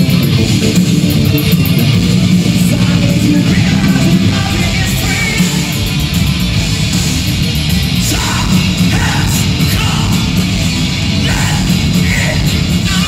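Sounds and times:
bass guitar: 0.0s - 13.0s
distorted electric guitars: 0.0s - 13.0s
pounding drums: 0.0s - 13.0s
vocals in short phrases: 2.4s - 5.9s, 8.0s - 10.5s, 11.2s - 13.0s.

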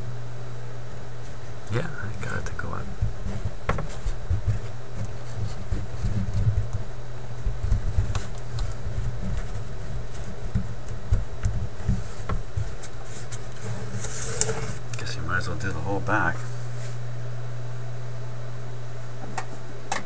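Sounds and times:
steady low hum: 0.0s - 20.0s
paper rustling: 2.4s - 14.8s.

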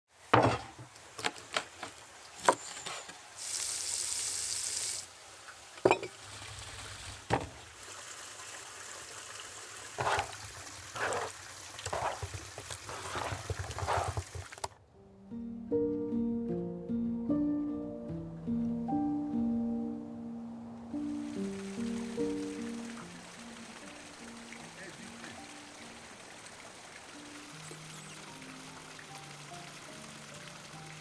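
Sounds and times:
hiss: 3.4s - 5.2s.

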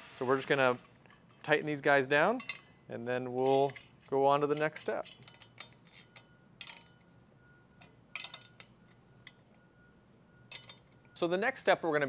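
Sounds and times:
wrench clinking on metal: 2.3s - 7.1s, 7.8s - 9.6s, 10.5s - 11.2s.

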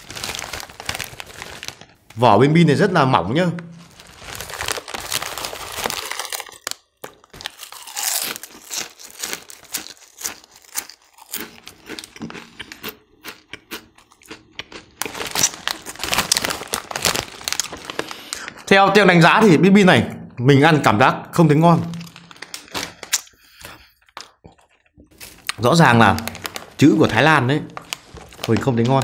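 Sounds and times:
foil snack bag crinkling: 0.0s - 2.2s, 3.7s - 12.9s, 14.7s - 18.7s, 21.8s - 29.0s
crunching snacks being chewed: 3.9s - 18.5s, 21.9s - 26.8s.

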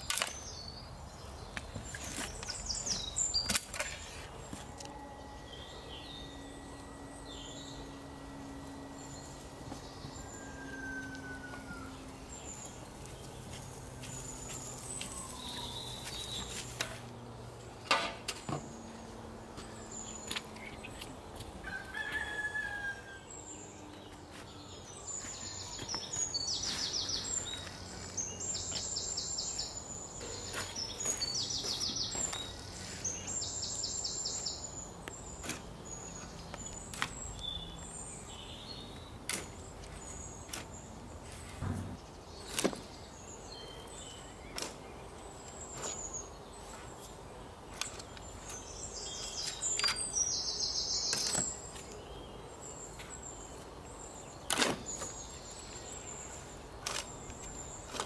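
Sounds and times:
small birds chirping: 0.0s - 58.0s
rooster crowing: 7.9s - 12.3s, 21.6s - 23.5s
sharp knock: 41.6s - 42.0s.

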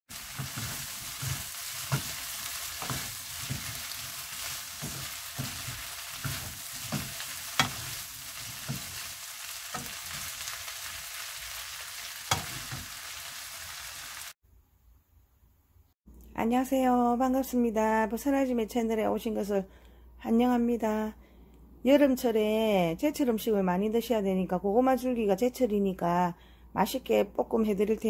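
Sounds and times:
spatula scraping a pan: 0.1s - 13.7s
vegetables sizzling in a frying pan: 0.1s - 14.4s.

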